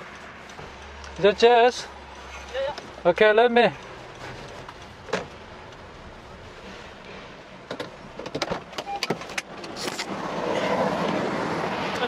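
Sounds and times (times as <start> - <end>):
street noise: 0.0 - 12.0
clicks and knocks inside car: 7.6 - 9.8
car door opening: 7.6 - 10.2.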